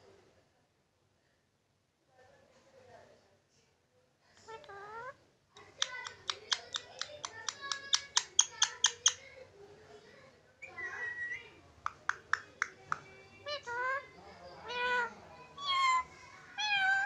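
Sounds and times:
parakeet clicking chirps: 5.6s - 9.2s, 11.8s - 13.1s
parakeet warbling call: 14.7s - 16.1s.

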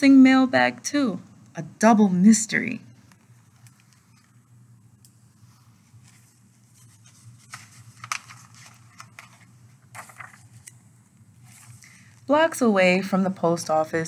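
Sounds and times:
faint room hum: 0.0s - 14.0s
book page turning: 5.4s - 10.8s, 11.4s - 12.0s.

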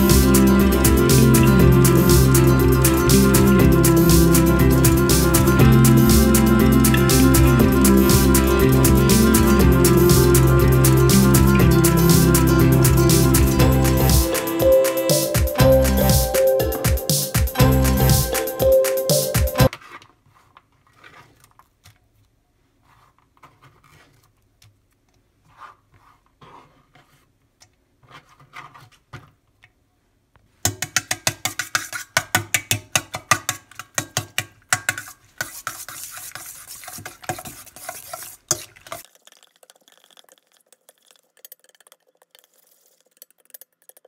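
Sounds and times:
soft stirring: 34.7s - 44.0s.

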